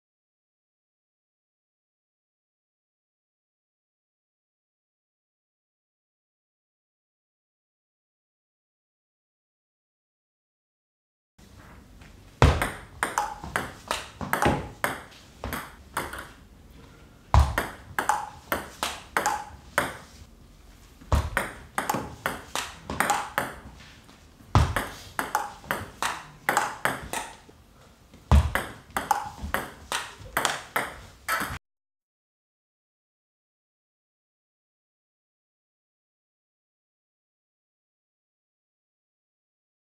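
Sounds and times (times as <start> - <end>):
table tennis ball clicking: 12.6 - 16.4, 17.4 - 20.0, 21.4 - 23.6, 24.7 - 27.5, 28.6 - 31.6.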